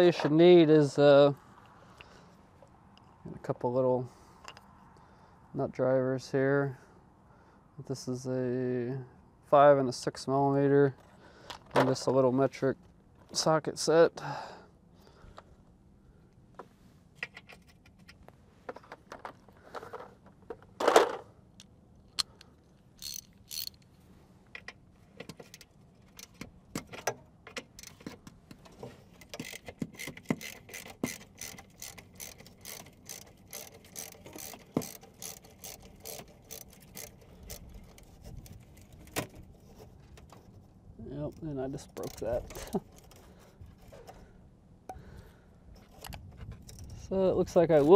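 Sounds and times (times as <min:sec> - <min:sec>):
hand ratchet clicking: 0:22.2 - 0:23.8, 0:27.7 - 0:28.0, 0:29.2 - 0:39.2, 0:41.8 - 0:43.2.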